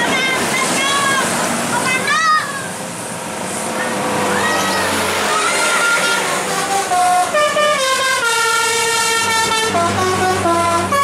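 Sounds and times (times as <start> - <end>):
bus musical horn playing: 5.3 - 11.0.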